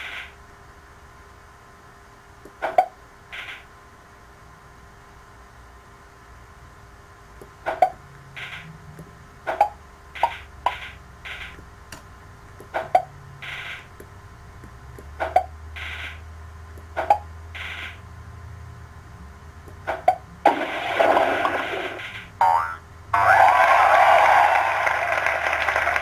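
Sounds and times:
low steady hum: 0:00.0 - 0:26.0
game clicks and blips: 0:09.5 - 0:11.6, 0:12.6 - 0:13.9, 0:15.0 - 0:16.2, 0:16.8 - 0:18.0, 0:19.7 - 0:22.8.

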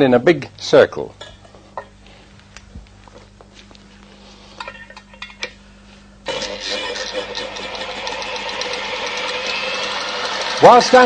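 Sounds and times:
low steady hum: 0:00.0 - 0:08.2
motor spinning up: 0:06.2 - 0:11.0.

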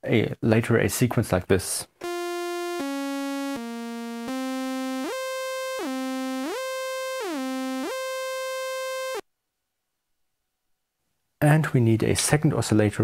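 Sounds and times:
synthesizer sawtooth tone gliding: 0:02.0 - 0:09.2.

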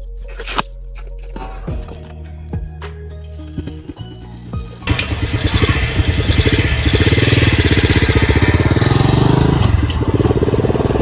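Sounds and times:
mini bike engine revving: 0:04.9 - 0:11.0.

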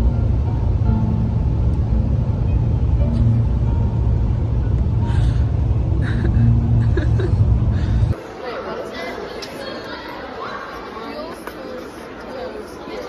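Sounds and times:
road noise inside car: 0:00.0 - 0:08.2.

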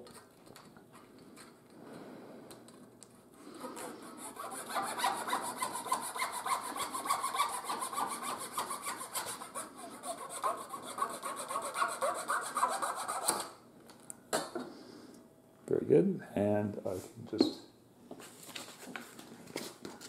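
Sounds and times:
hand saw cutting wooden dowel: 0:03.6 - 0:13.6.

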